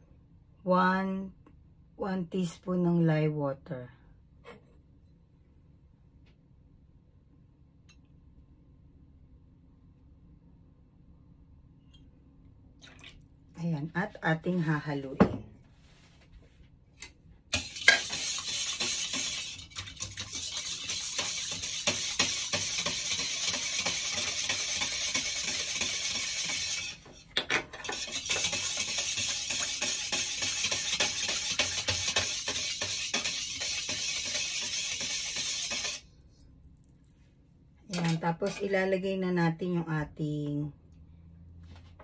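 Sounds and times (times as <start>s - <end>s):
whisk clicking against metal bowl: 17.5s - 27.0s, 27.8s - 36.0s.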